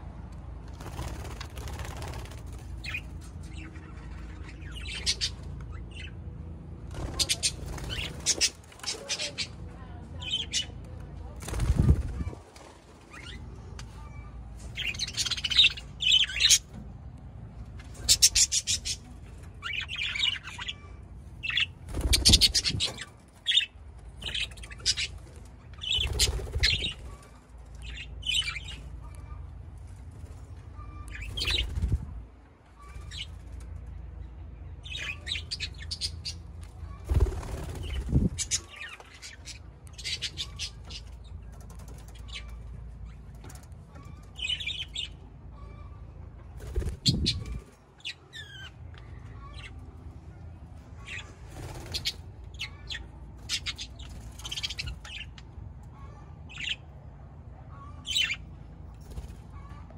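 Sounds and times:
budgerigars chattering and chirping: 2.8s - 6.2s, 7.0s - 9.5s, 14.7s - 16.7s, 17.9s - 25.2s, 25.8s - 29.4s, 34.8s - 36.5s, 37.1s - 45.9s, 51.0s - 56.8s, 57.7s - 58.4s
wingbeats: 11.4s - 13.4s, 21.4s - 23.6s, 37.0s - 38.8s.

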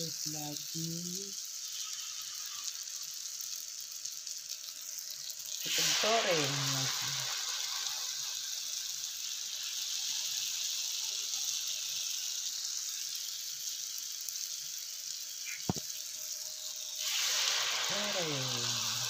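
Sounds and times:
hot oil sizzling: 0.0s - 19.0s.

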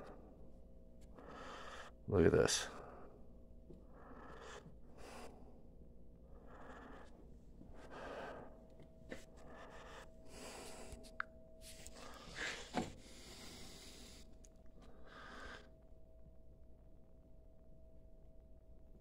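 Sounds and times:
faint steady hum: 0.0s - 19.0s
faint breathing: 1.1s - 2.0s, 2.6s - 15.8s.

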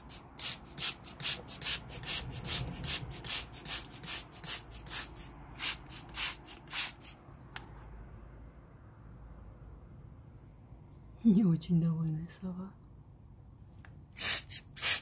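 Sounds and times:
spray bottle hissing: 0.0s - 7.2s, 14.2s - 15.0s.

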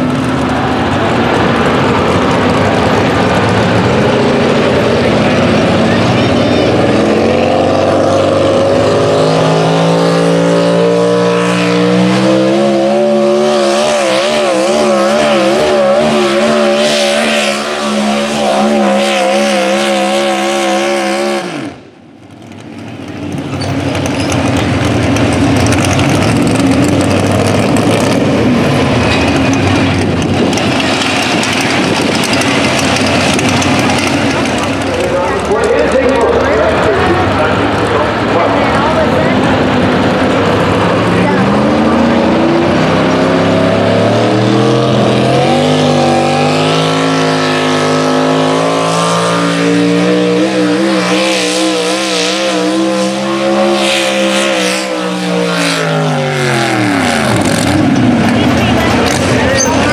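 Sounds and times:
steady rushing noise: 0.0s - 10.8s, 21.8s - 51.8s
truck engine revving: 0.0s - 59.9s.

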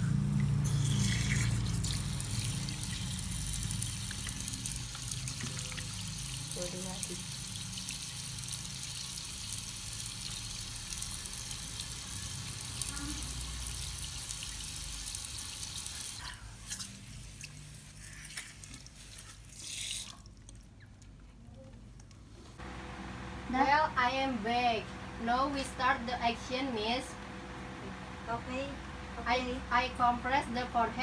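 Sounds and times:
water splashes and drips: 0.2s - 20.8s.

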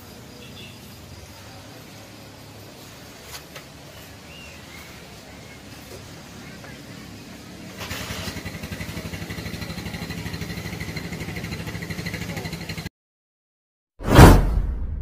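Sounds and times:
small engine running: 7.0s - 12.9s.

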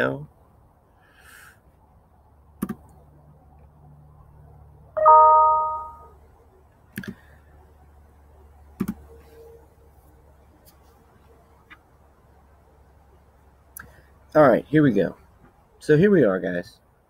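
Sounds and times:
bell-like chime: 5.0s - 6.1s.

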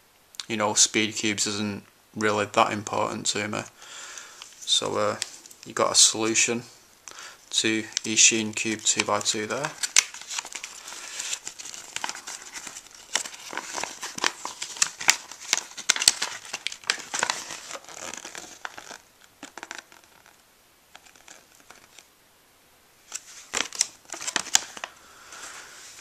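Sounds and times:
paper leaflet crinkling: 7.6s - 22.1s, 23.1s - 26.0s.

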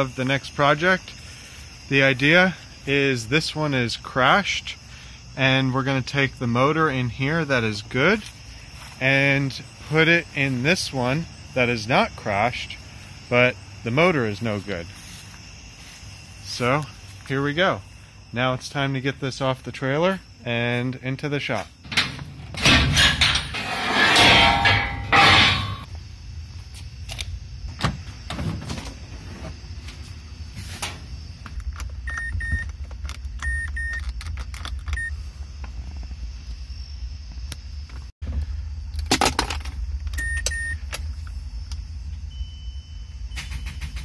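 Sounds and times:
metal clanking and rattling: 21.8s - 25.9s.

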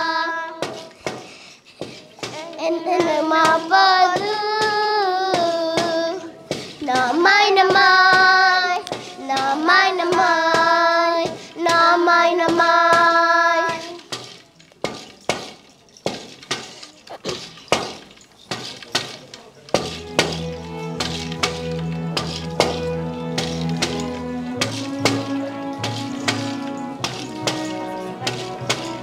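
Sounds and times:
children singing in unison: 0.0s - 1.0s, 2.4s - 14.0s
regular knocking beat: 3.0s - 29.0s.

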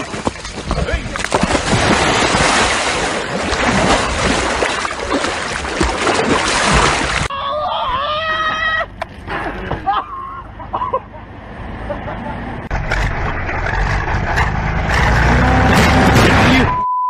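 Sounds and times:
floodwater splashing around a car: 0.0s - 7.3s.

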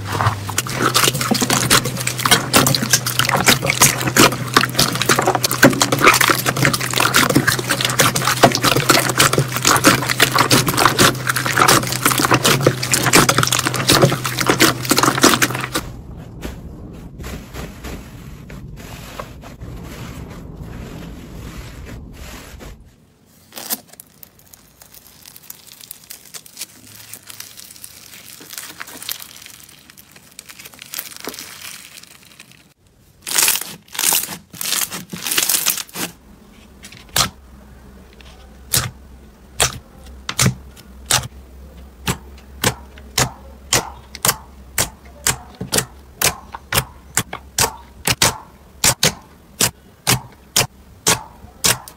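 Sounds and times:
slime crackling: 0.0s - 16.0s, 23.3s - 36.2s, 42.0s - 51.9s.

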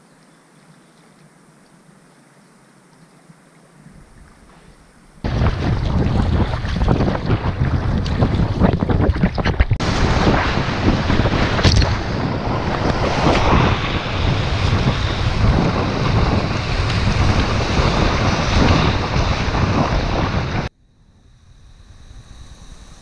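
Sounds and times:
wind buffeting microphone: 3.9s - 20.7s.

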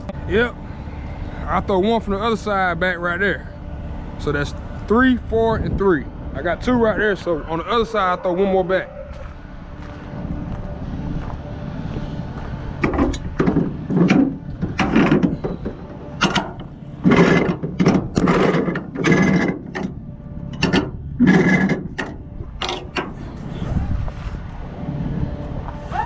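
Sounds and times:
strap rasping through winch: 12.8s - 24.2s.

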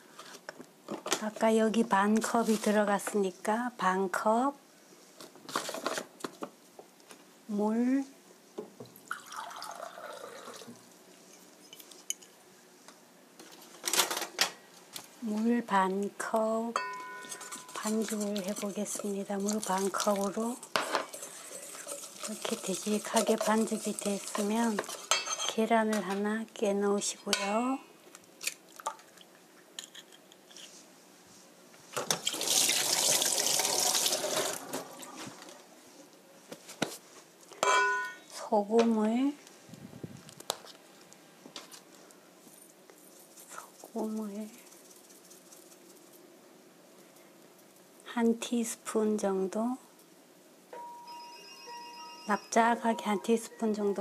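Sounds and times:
water running into cup: 9.0s - 10.8s, 21.1s - 24.5s, 32.1s - 35.1s.

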